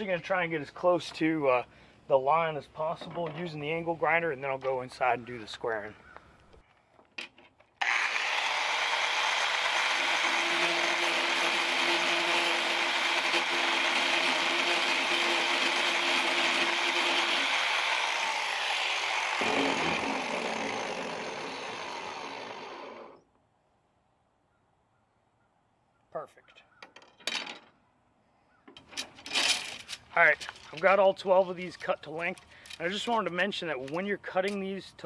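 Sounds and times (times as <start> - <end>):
angle grinder grinding: 7.8 - 23.2.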